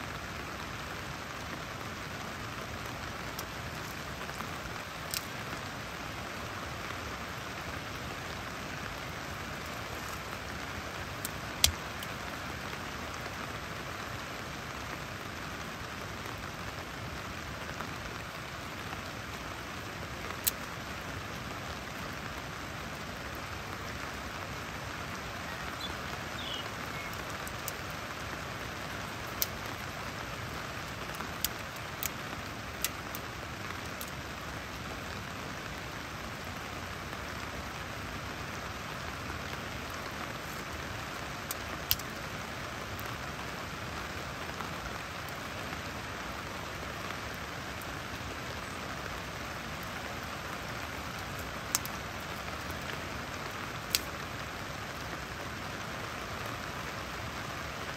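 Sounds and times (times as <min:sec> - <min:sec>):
rain hissing: 0:00.0 - 0:57.9
twigs snapping: 0:05.0 - 0:05.3.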